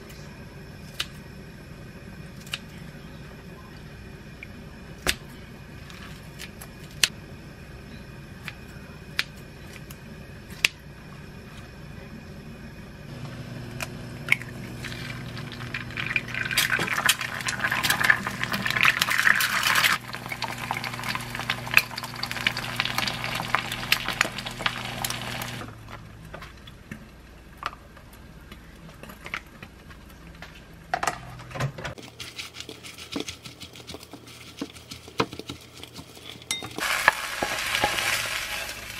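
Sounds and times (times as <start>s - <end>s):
low hum: 0.0s - 31.4s
eggs sizzling in a pan: 13.1s - 25.6s, 35.9s - 38.9s.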